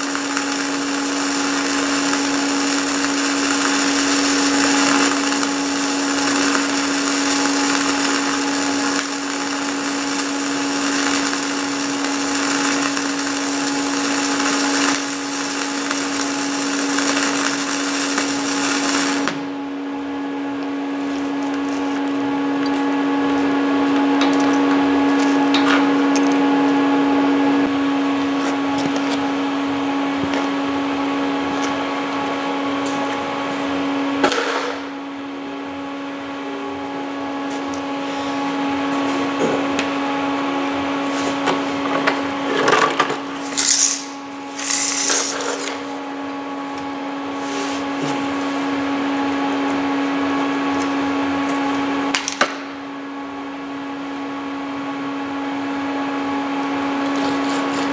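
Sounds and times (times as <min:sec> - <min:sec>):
welding arc crackling: 0:00.0 - 0:19.5, 0:40.7 - 0:46.8
steady machine hum: 0:00.0 - 0:57.9.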